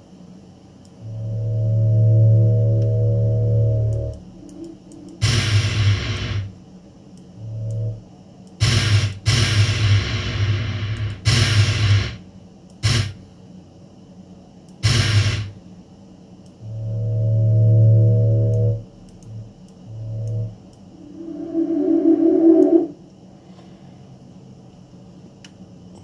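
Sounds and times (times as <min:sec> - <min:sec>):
low hum: 0:00.9 - 0:06.6, 0:07.4 - 0:08.2, 0:16.5 - 0:23.1
hissy whooshing synth tones: 0:16.7 - 0:23.0
brief low synth note: 0:19.9 - 0:22.9.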